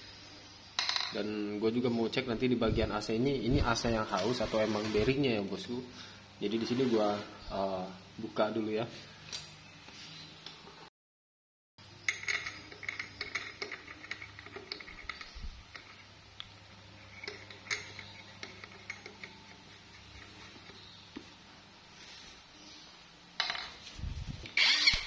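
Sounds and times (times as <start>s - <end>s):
metal clicks and clinks: 12.1s - 16.0s, 17.1s - 19.6s.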